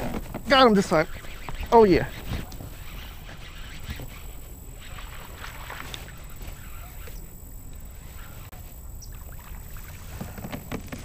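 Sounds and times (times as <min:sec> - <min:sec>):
fishing reel being cranked: 0:00.6 - 0:08.5
low rumble of handling and water: 0:01.9 - 0:11.0.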